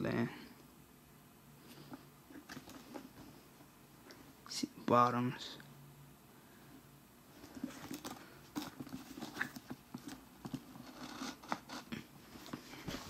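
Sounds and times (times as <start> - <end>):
hands handling a boot: 12.3 - 13.0.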